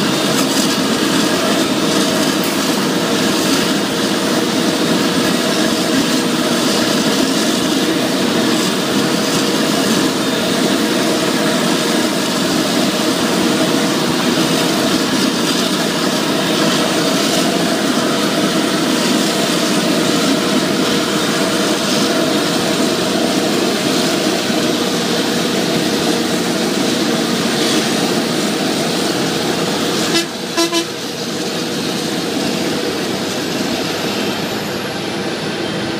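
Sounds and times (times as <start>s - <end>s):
forage harvester running: 0.0s - 35.9s
horn toots: 30.0s - 31.0s.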